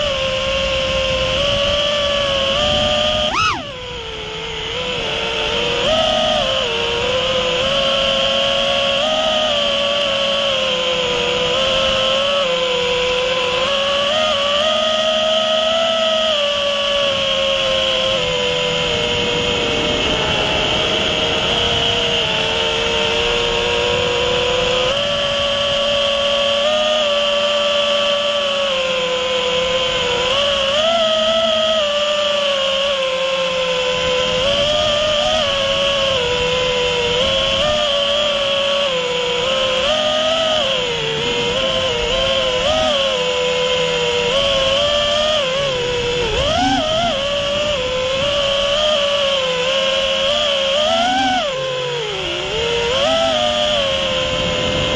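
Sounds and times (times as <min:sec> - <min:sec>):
drone motors buzzing whine: 0:00.0 - 0:54.9
wind rushing on microphone: 0:00.0 - 0:54.9
rush of air: 0:18.8 - 0:22.8.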